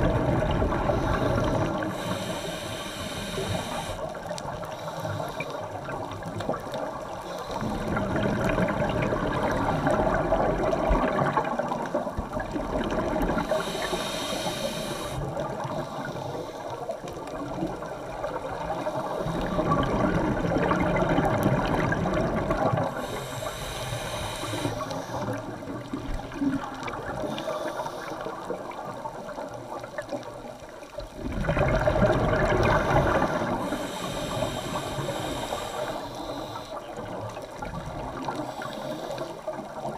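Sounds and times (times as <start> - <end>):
exhaled bubbles underwater: 0.0 - 39.9
regulator inhaling hiss: 0.8 - 6.0, 7.2 - 8.2, 13.3 - 17.0, 22.8 - 25.5, 27.1 - 28.6, 32.7 - 37.0, 38.3 - 39.6.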